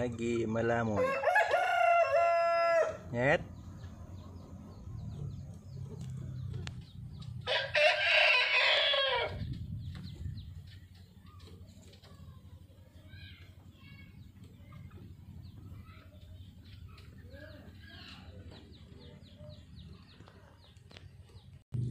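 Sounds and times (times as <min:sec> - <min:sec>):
faint chicken calls: 0:00.9 - 0:03.2, 0:04.2 - 0:21.6
rooster crowing: 0:01.0 - 0:03.0, 0:07.4 - 0:09.4.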